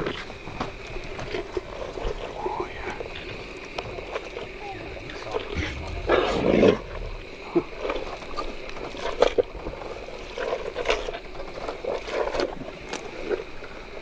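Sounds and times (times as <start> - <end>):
hippopotamus mouth noises: 1.2 - 13.5
hippopotamus breathing heavily: 1.3 - 9.4.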